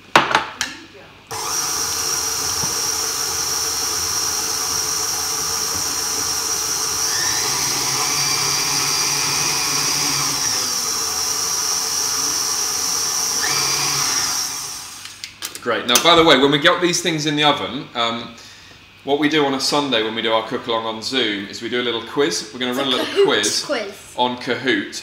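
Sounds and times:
stand mixer motor whine: 0:01.3 - 0:15.1.

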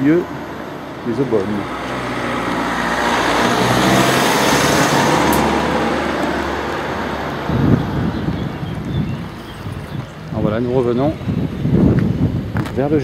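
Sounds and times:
car driving past: 0:01.2 - 0:10.1.

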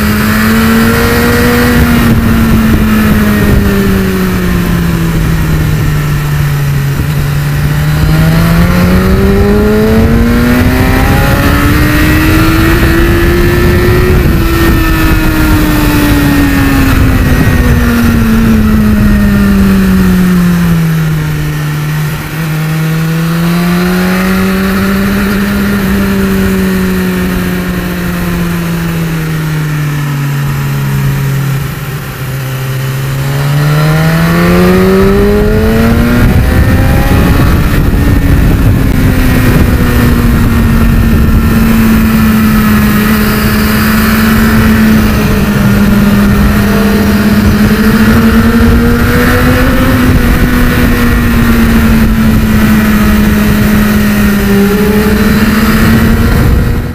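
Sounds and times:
motorcycle engine: 0:00.0 - 0:56.9
steady rush of noise: 0:00.0 - 0:56.9.

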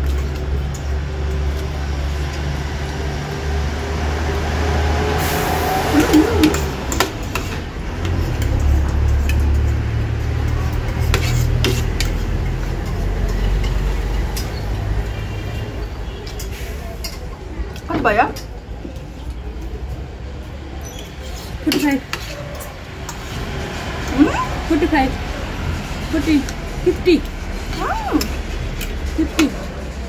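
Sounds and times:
cutlery clicking against a plate: 0:06.4 - 0:14.7, 0:28.2 - 0:29.7.

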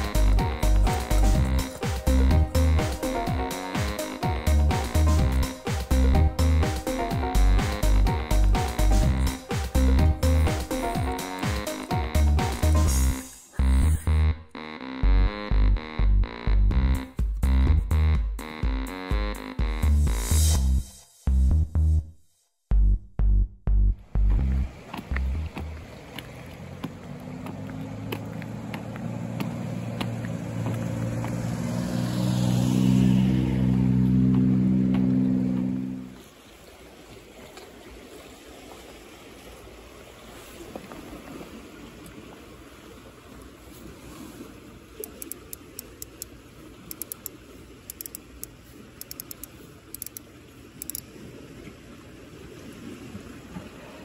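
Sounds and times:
car engine hum: 0:23.9 - 0:36.2
footsteps on pavement: 0:24.3 - 0:31.7
fishing reel clicks: 0:45.0 - 0:46.3, 0:46.9 - 0:50.2, 0:50.8 - 0:51.0.

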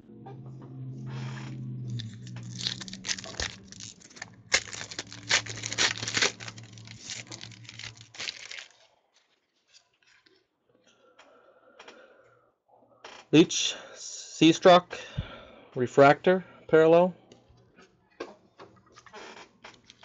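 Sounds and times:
foil wrapper tearing and crinkling: 0:01.9 - 0:10.2.

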